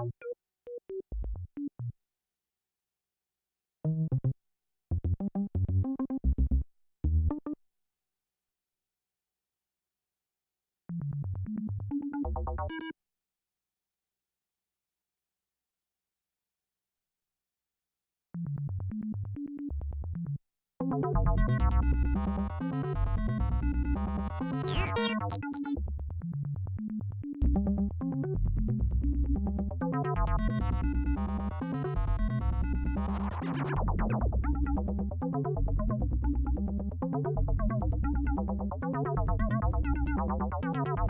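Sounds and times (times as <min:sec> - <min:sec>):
electronic synthesizer music: 0:24.6 - 0:25.8.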